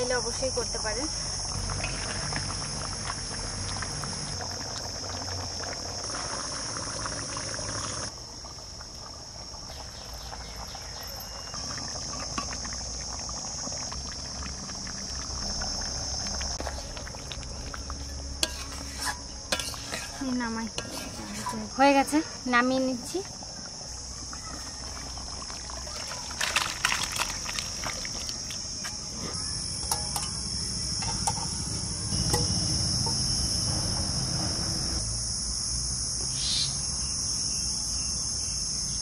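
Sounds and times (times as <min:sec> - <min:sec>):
insects chirring: 0:00.0 - 0:39.0
thick stew bubbling: 0:01.4 - 0:29.9.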